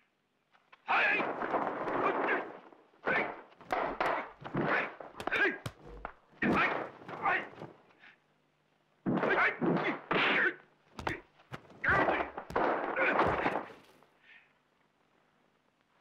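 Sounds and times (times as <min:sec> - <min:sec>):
short yells and grunts: 0:03.1 - 0:07.7
punch and kick impacts: 0:03.1 - 0:07.8, 0:11.0 - 0:14.0.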